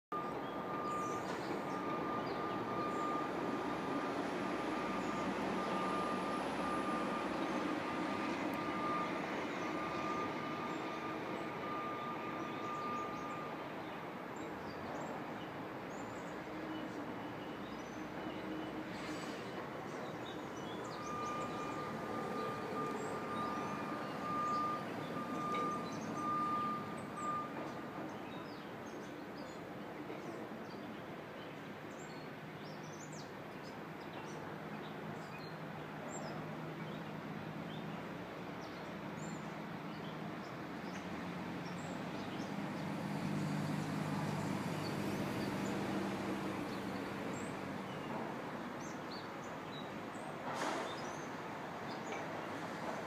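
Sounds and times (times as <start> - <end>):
distant traffic hum: 0.1 - 53.0
birds chirping: 19.9 - 29.1.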